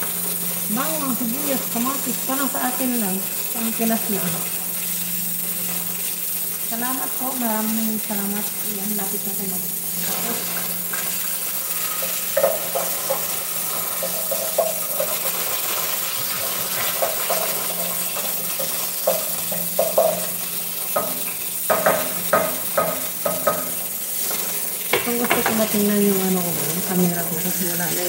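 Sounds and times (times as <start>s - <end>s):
food sizzling in a pan: 0.0s - 28.0s
spoon clacking against pan: 10.0s - 25.8s.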